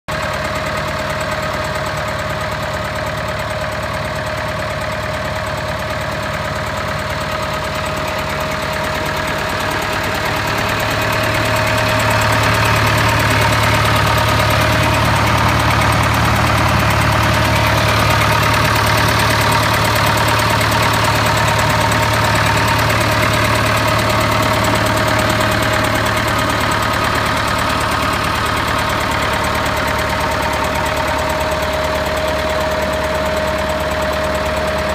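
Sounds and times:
tractor diesel engine idling: 0.1s - 34.9s.

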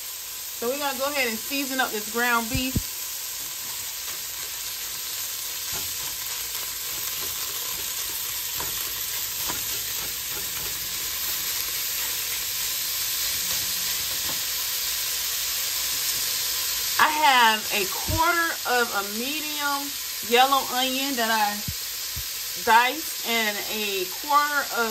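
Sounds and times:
ground beef sizzling: 0.0s - 24.9s
spatula scraping pan: 3.4s - 15.0s.

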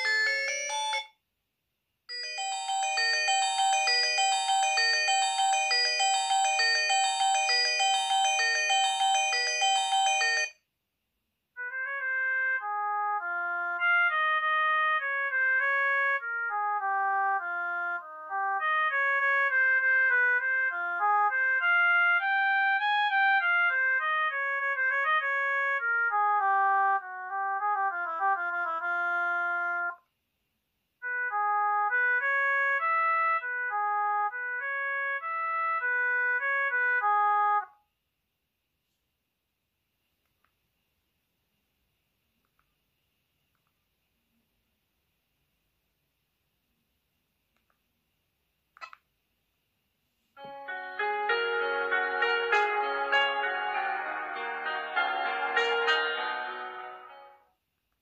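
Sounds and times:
polyphonic phone ringtones: 0.0s - 1.2s, 2.1s - 10.6s.

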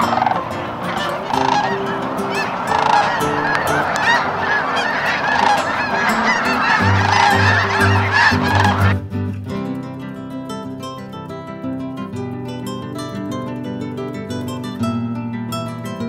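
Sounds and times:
flock of geese honking: 0.0s - 9.0s.

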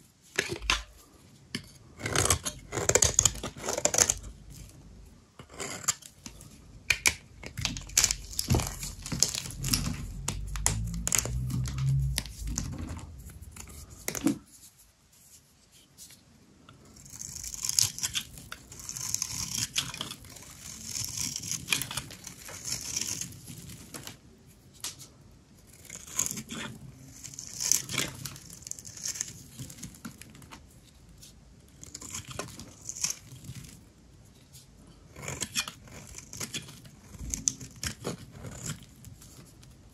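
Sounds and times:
soap crackling and crunching: 17.0s - 24.1s, 25.7s - 30.6s, 31.2s - 33.8s, 35.1s - 39.5s.

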